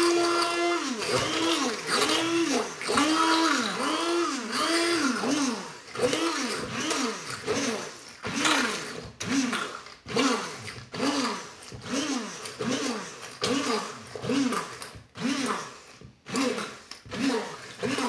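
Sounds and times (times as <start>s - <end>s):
electric hand blender running: 0.0s - 18.0s.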